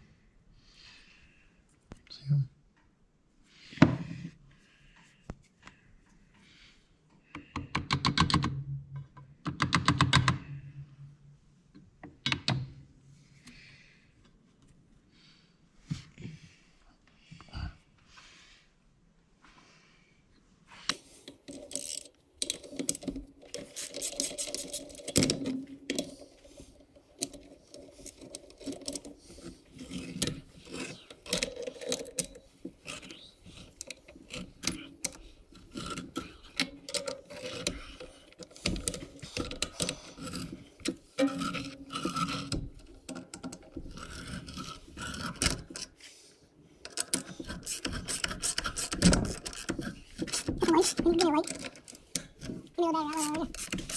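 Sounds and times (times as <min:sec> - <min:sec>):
ratchet wrench turning bolt: 0:21.5 - 0:25.2, 0:46.9 - 0:51.7, 0:53.1 - 0:53.9.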